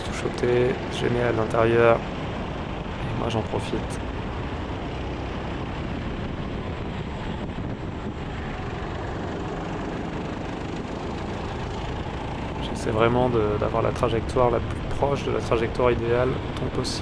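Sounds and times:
wind rush on microphone: 0.0 - 17.0
kart engine running under load: 4.0 - 14.9.

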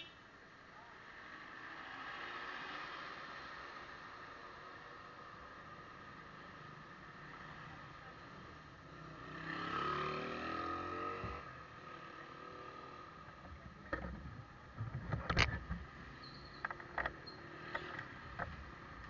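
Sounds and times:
vehicle engine passing: 9.1 - 12.9.

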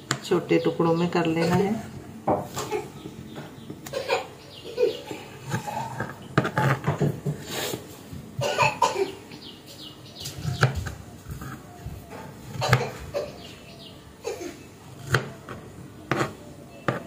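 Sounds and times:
knife cutting on plastic board: 5.4 - 7.8, 10.2 - 13.1, 15.0 - 17.0.

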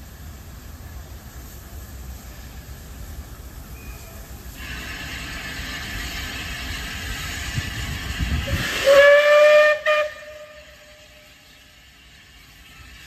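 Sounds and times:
steam locomotive hissing: 0.0 - 13.0
steam whistle blast: 8.5 - 11.5.

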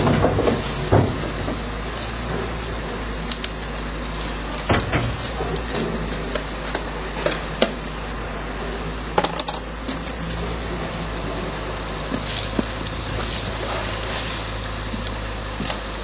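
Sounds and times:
rubbish knocking and clattering: 0.0 - 7.9, 9.1 - 10.5.

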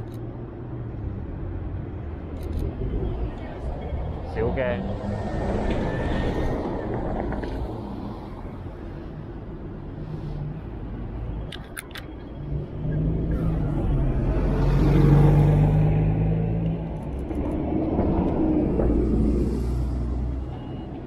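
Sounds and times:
street traffic rumble: 0.0 - 21.0
vehicle passing close by: 2.6 - 8.3, 12.4 - 20.6.

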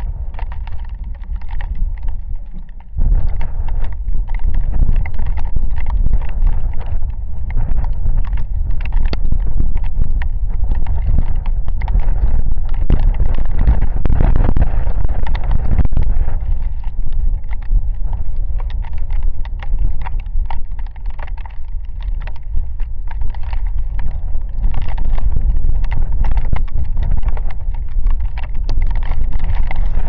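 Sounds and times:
raindrops tapping: 0.0 - 30.0
wind buffeting microphone: 0.0 - 30.0.

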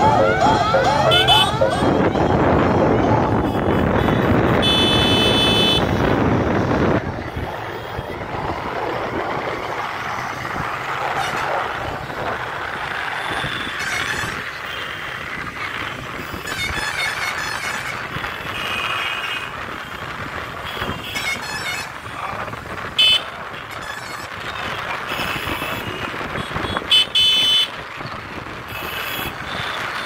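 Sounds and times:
car horn honking: 0.0 - 6.1, 23.0 - 23.3, 25.1 - 27.7
traffic noise: 0.0 - 30.0.

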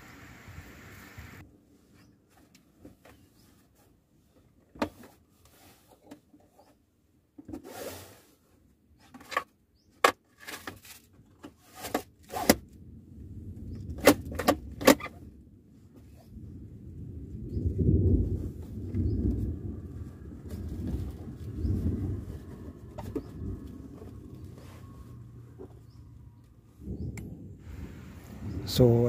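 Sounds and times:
rustling slide: 7.6 - 8.5.

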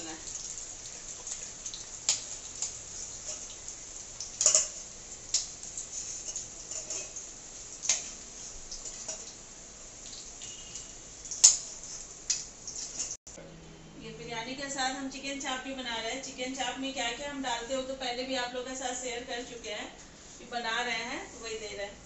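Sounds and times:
potatoes sizzling in hot oil: 0.0 - 13.2
oil popping and clicking: 0.3 - 2.8, 11.3 - 11.7.

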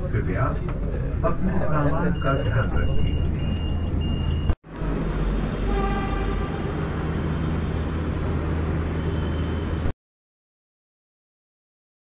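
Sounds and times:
low hum of standing train: 0.0 - 9.9
train door warning beeps: 1.7 - 4.6.

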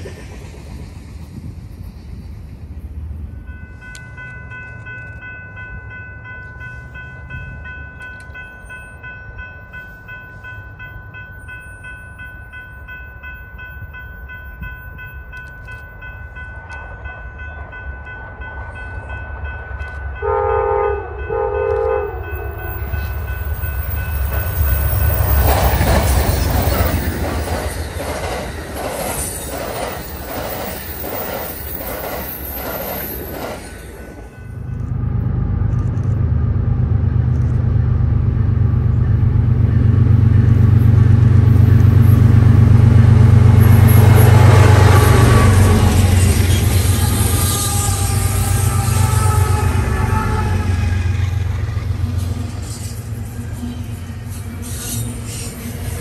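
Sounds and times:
train wheels clickety-clack: 0.0 - 3.0, 21.6 - 35.0
locomotive rumbling by: 0.0 - 56.0
train horn blasts: 20.2 - 23.2, 43.6 - 51.2.

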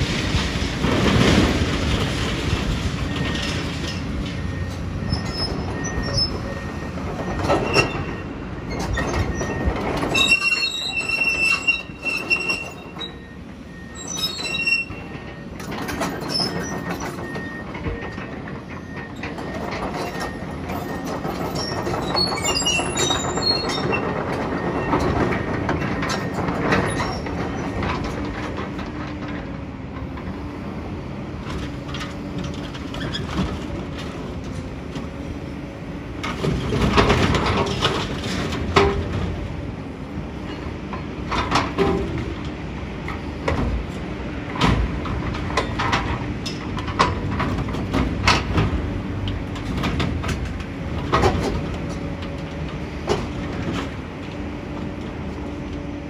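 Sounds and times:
excavator engine rumble: 0.0 - 56.0
metal squeals: 4.6 - 15.4, 20.0 - 25.0.

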